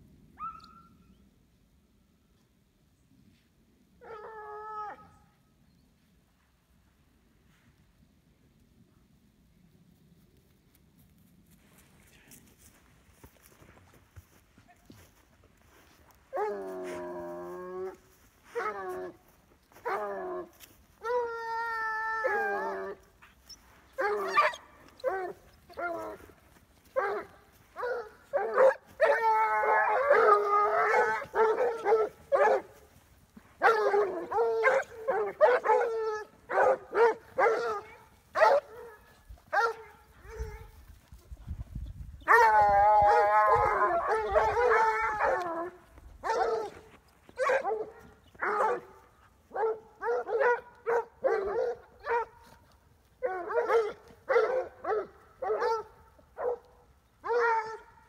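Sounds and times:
dogs howling long wavering cry: 4.0s - 5.2s, 16.3s - 19.2s, 19.8s - 23.1s, 27.0s - 32.8s, 33.5s - 38.7s, 42.3s - 46.8s, 57.2s - 58.0s
hounds baying: 16.1s - 40.8s, 42.2s - 58.0s
dogs yelping: 22.2s - 26.3s, 27.0s - 32.8s, 33.6s - 38.8s, 42.3s - 45.6s.

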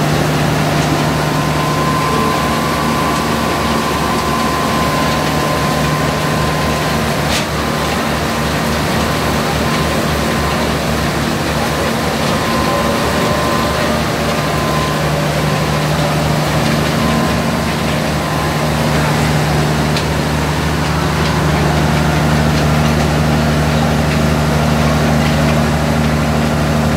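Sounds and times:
low motor hum: 0.0s - 26.9s
machinery mechanical noise: 0.0s - 26.9s.

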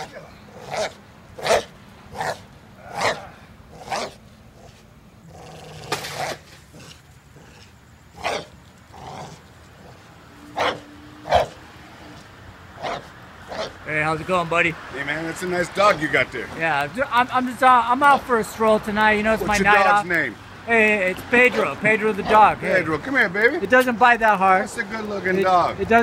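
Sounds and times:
dog barking: 0.6s - 4.2s, 8.2s - 8.5s, 10.6s - 11.6s, 12.8s - 13.8s.

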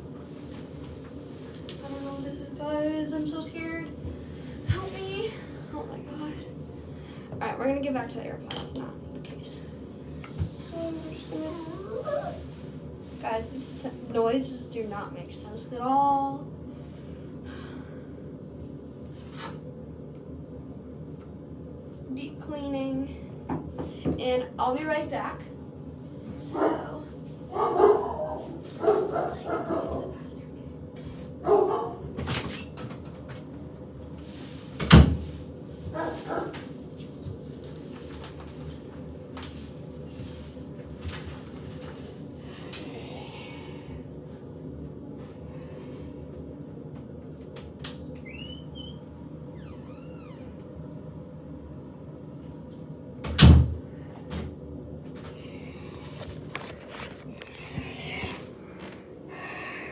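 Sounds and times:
dogs barking: 27.5s - 30.2s, 31.4s - 32.1s.

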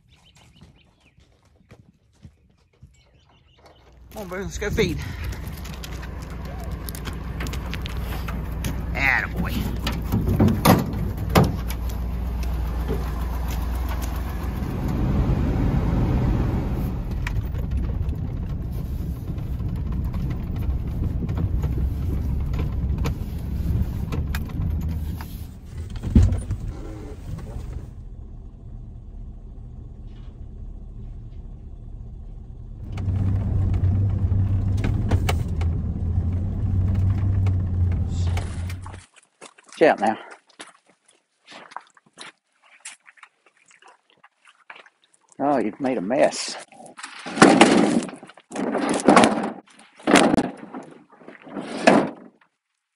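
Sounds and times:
truck engine and road rumble: 3.2s - 39.1s.

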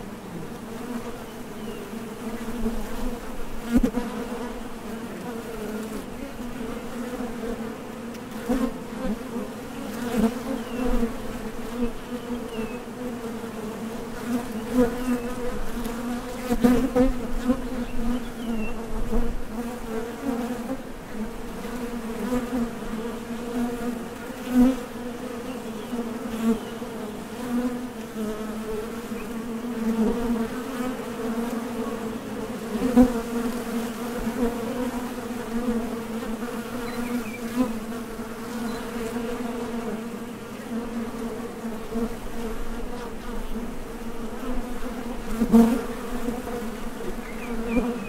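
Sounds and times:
bees buzzing: 0.0s - 48.0s.

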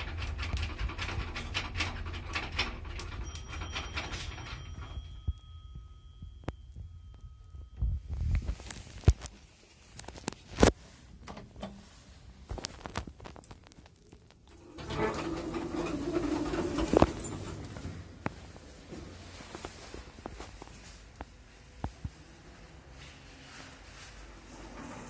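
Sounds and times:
elevator car rumbling and rattling: 0.0s - 5.3s, 14.5s - 19.2s, 24.2s - 25.0s
elevator clicks and clunks: 0.0s - 6.5s, 14.5s - 18.2s.

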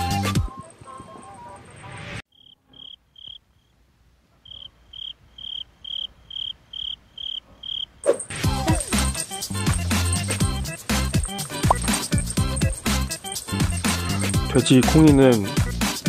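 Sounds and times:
cricket chirping: 2.3s - 14.5s
background music: 8.3s - 16.0s.

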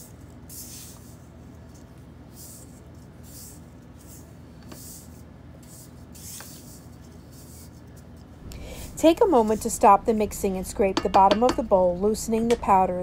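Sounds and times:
spatula swishing through powder: 0.0s - 10.0s.

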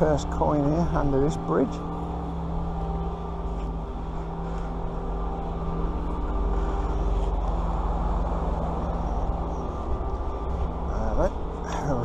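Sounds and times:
engine running steadily: 0.0s - 12.0s.

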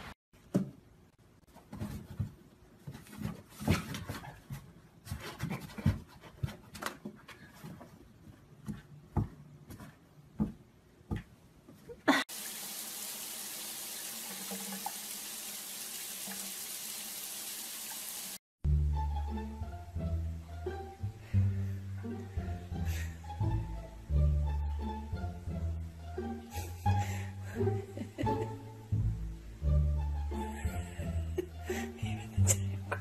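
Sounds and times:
water running from bathtub tap: 12.3s - 18.4s.

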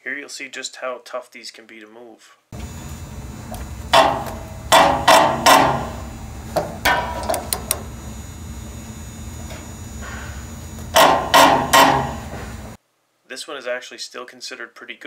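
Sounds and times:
metal-on-metal bangs: 3.0s - 7.3s, 10.9s - 12.8s.

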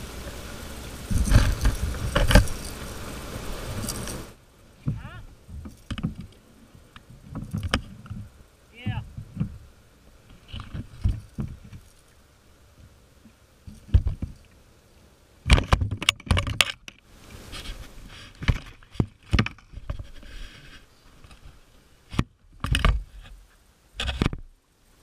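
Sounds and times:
knocks and scrapes on plastic kayak hull: 4.8s - 9.7s, 10.3s - 11.9s, 13.7s - 14.6s, 15.5s - 24.6s.

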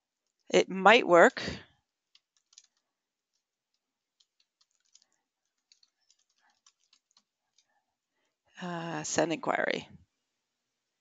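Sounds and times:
typing on computer keyboard: 2.1s - 7.3s.

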